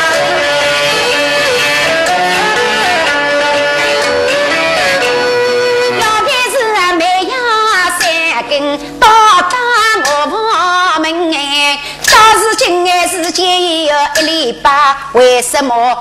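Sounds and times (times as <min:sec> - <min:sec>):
traditional instrumental accompaniment: 0:00.0 - 0:10.9
woman singing opera: 0:04.5 - 0:16.0.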